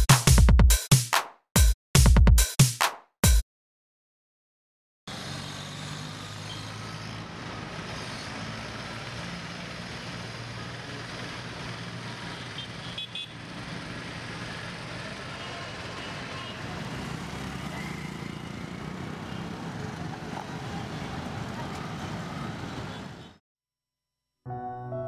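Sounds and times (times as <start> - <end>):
vehicle engines din: 5.1 - 23.4.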